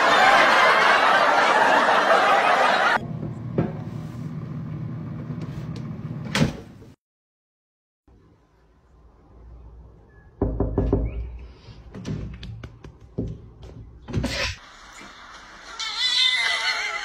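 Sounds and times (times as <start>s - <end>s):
taps and knocks on a window pane: 10.4s - 11.2s.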